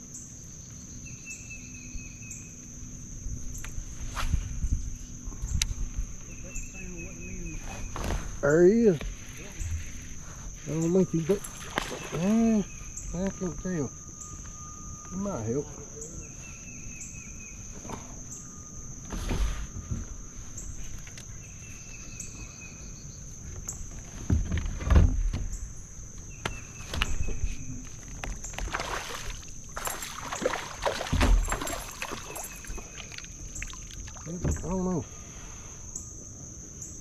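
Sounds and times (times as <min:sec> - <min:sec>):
high-pitched insect buzz: 0:00.0 - 0:24.1, 0:25.5 - 0:37.0
thumps against kayak hull: 0:29.9 - 0:33.1.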